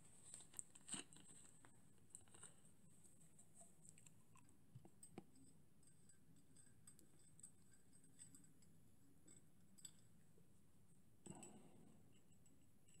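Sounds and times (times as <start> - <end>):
small clicks and ticks: 0.2 - 10.5.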